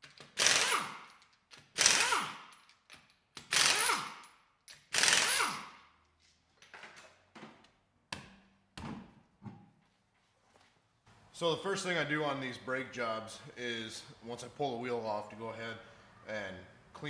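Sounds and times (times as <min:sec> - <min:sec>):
impact wrench spinning: 0:00.1 - 0:05.9.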